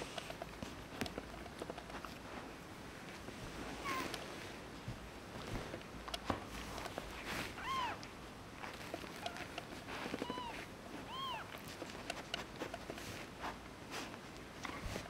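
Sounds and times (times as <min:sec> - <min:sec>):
soft rustling and small clicks: 0:00.0 - 0:15.0
kitten mewing: 0:07.5 - 0:08.0, 0:10.2 - 0:11.7.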